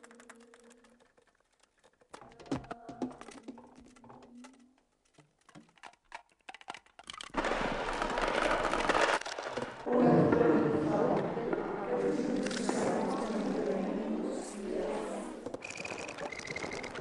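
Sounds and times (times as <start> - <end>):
scattered clicks: 15.5 - 17.0.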